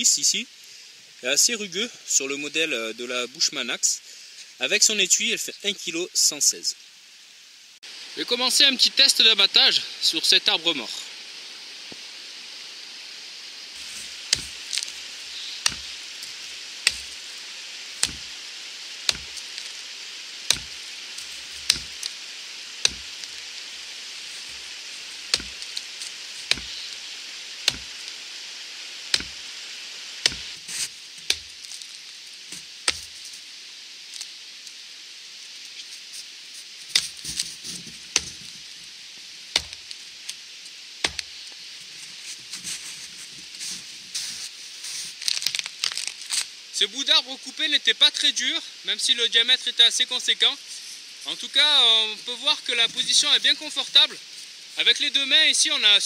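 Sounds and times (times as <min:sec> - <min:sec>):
axe chopping into tree trunk: 0:13.8 - 0:17.2, 0:18.0 - 0:18.4, 0:19.1 - 0:19.5, 0:20.5 - 0:22.1, 0:22.8 - 0:23.4, 0:25.3 - 0:25.8, 0:26.5 - 0:26.8, 0:27.7 - 0:28.0, 0:29.1 - 0:29.4, 0:30.2 - 0:31.6, 0:32.9 - 0:33.2, 0:36.9 - 0:37.4, 0:38.1 - 0:38.5, 0:39.6 - 0:39.9, 0:41.0 - 0:41.4.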